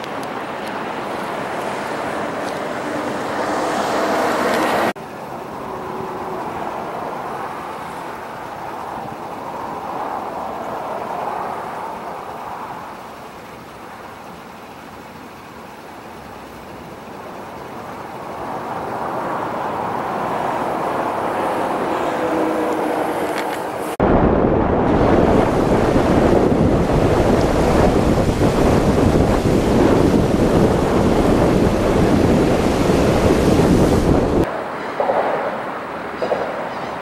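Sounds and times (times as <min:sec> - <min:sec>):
floodwater spraying: 0:00.0 - 0:34.6
wind noise: 0:18.4 - 0:37.0.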